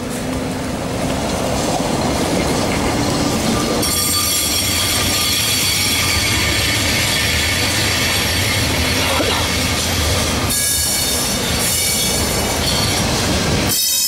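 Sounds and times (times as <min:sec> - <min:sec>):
tram running past: 0:00.0 - 0:14.0
tram wheels squealing on rails: 0:01.4 - 0:14.0.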